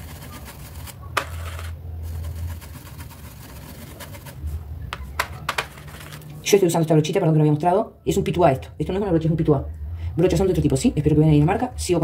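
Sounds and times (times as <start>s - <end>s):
paintbrush rubbing on fabric: 2.0s - 4.7s.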